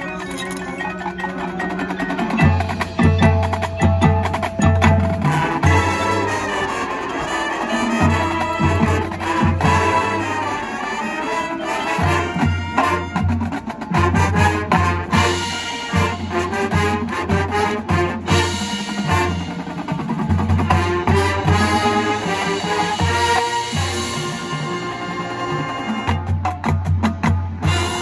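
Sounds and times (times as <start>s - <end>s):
marching band playing: 0.0s - 28.0s
held brass chords: 5.1s - 19.8s, 20.7s - 26.3s.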